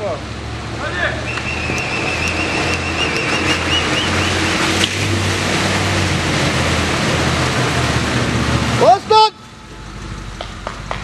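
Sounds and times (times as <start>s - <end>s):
engine under heavy throttle: 0.0s - 11.0s
tyres churning mud: 0.2s - 11.0s
high wavering whistle tone: 1.2s - 4.8s.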